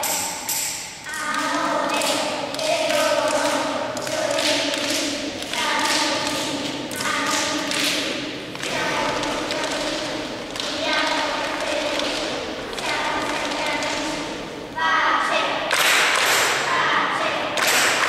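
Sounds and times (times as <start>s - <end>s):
children singing: 1.1s - 18.0s.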